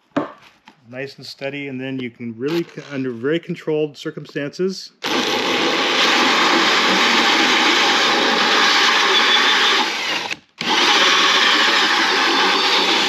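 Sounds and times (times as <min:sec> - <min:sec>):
power drill cutting wood: 0:05.0 - 0:13.0.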